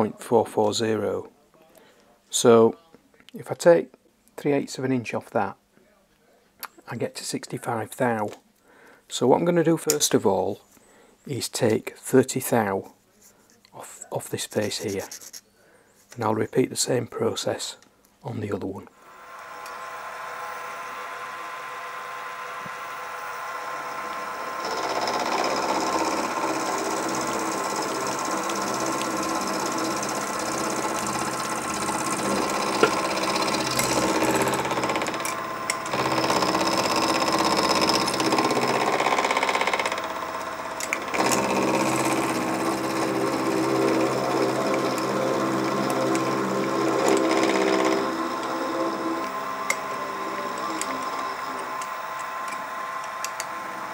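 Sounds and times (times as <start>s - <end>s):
milling machine cutting metal: 19.2s - 53.9s.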